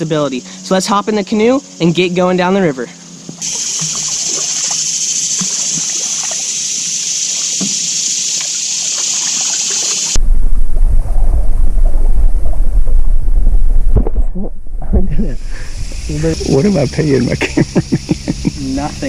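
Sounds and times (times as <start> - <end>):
paddle splashes and drips: 3.2 - 10.2
steady high hiss: 3.4 - 10.2, 15.2 - 19.0
wind buffeting microphone: 9.9 - 19.0.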